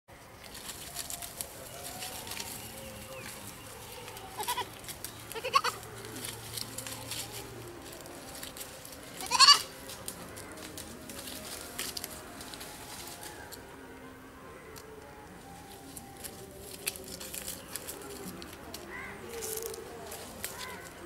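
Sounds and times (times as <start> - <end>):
leaves and twigs rustling: 0.2 - 13.8, 14.6 - 21.0
goat bleating: 4.0 - 7.4, 9.1 - 9.7.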